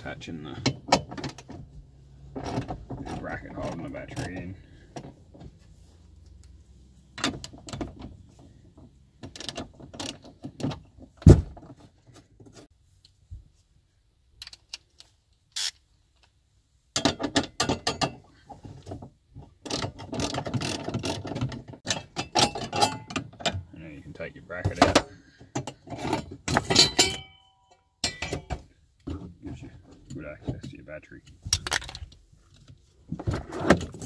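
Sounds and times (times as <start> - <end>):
ratchet wrench clicking: 15.6 - 15.8.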